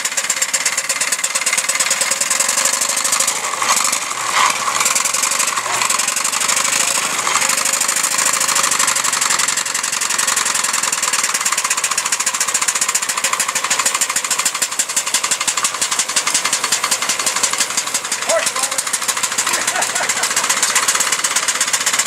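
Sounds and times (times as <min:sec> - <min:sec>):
steam engine exhaust beats: 0:00.0 - 0:22.0.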